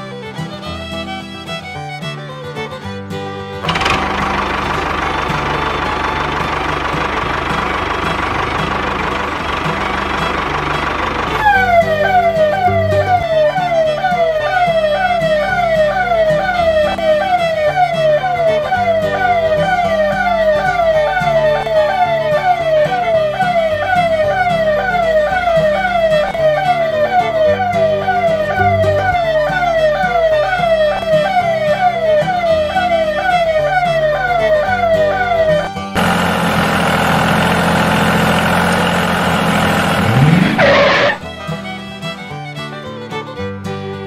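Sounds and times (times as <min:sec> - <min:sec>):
background music with bass: 0:02.8 - 0:44.0
small motor running: 0:03.6 - 0:13.3, 0:36.0 - 0:41.2
electronic siren wailing: 0:11.3 - 0:36.4, 0:39.1 - 0:41.2.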